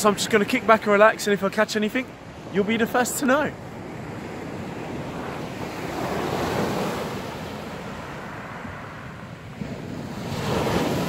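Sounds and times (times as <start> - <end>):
surf breaking on shore: 0.0 - 11.0
wind on microphone: 3.5 - 11.0.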